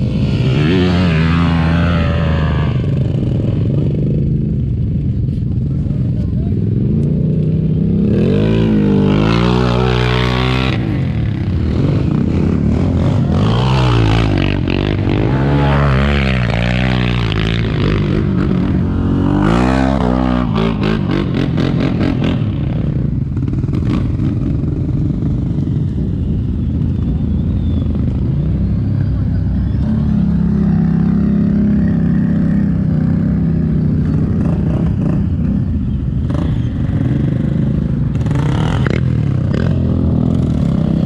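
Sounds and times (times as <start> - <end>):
quad engines revving: 6.6 - 26.0.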